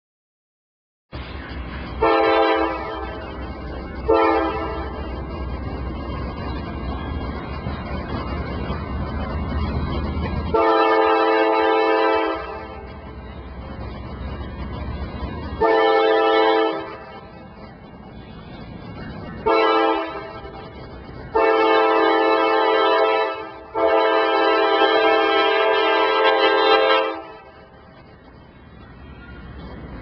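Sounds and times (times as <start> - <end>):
locomotive engine rumbling: 1.1 - 30.0
train wheels rumbling: 1.1 - 30.0
locomotive air horn blasts: 2.0 - 3.3, 4.0 - 5.1, 10.5 - 12.9, 15.6 - 17.3, 19.4 - 20.6, 21.3 - 27.6.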